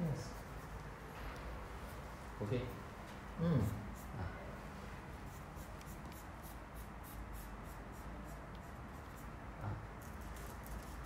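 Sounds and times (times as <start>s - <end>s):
pen scratching on paper: 3.6s - 4.1s, 5.2s - 9.4s.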